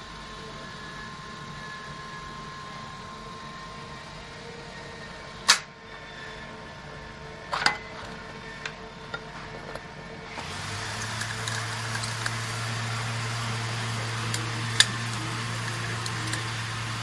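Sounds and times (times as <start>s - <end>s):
low hum with hiss: 0.0s - 17.0s.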